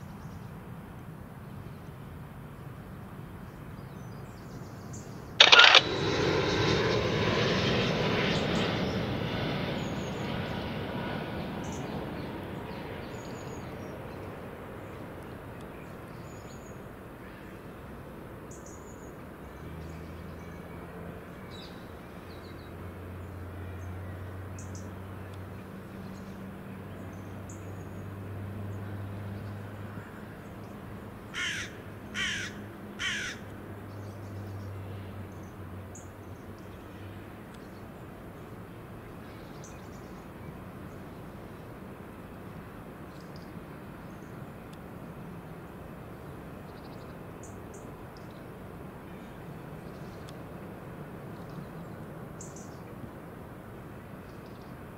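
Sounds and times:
broad rushing noise: 5.4s - 8.8s
steady low drone: 5.4s - 9.2s
crow cawing: 31.3s - 33.5s.

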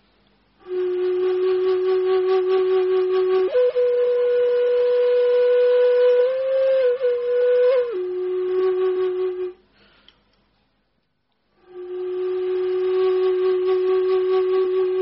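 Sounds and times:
music of long held notes: 0.6s - 9.6s, 11.6s - 15.0s.

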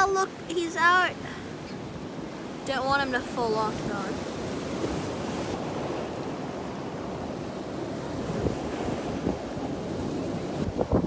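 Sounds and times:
ocean waves breaking: 0.0s - 11.0s
wind noise on microphone: 3.7s - 11.0s.

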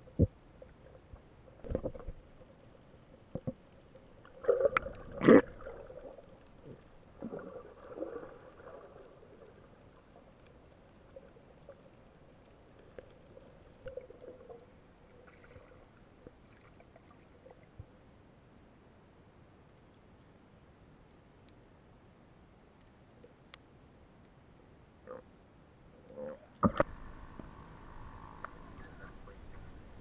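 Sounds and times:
faint ticks: 0.1s - 18.2s, 19.7s - 25.3s, 26.1s - 29.8s
gurgling bubbles underwater: 4.2s - 17.7s.

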